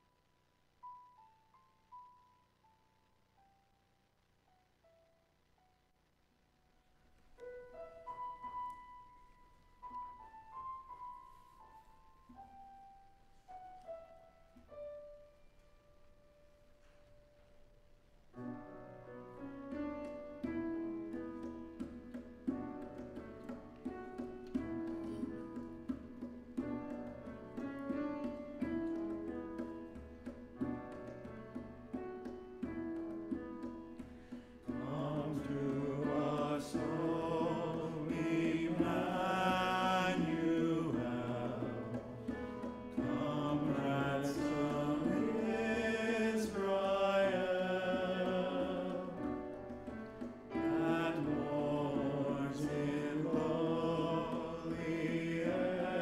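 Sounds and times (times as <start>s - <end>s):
hymn with piano accompaniment: 0.0s - 0.2s, 7.2s - 56.0s
group of voices singing: 34.7s - 42.2s, 43.0s - 49.4s, 50.6s - 56.0s.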